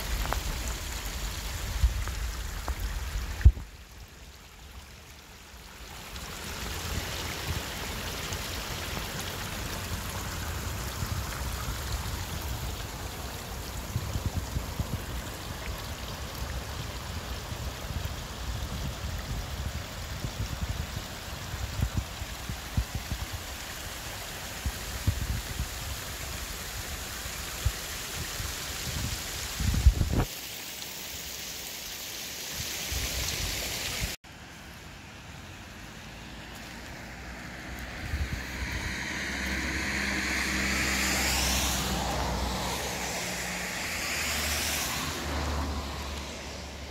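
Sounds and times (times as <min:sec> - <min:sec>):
wind rumble on microphone: 0:00.0 - 0:03.8, 0:09.7 - 0:30.3, 0:37.6 - 0:46.9.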